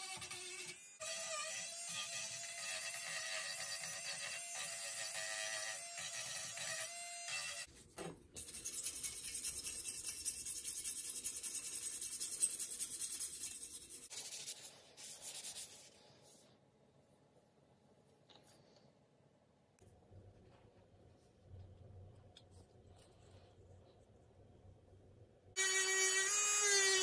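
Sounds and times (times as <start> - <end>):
sanding metal by hand: 8.4 - 15.8.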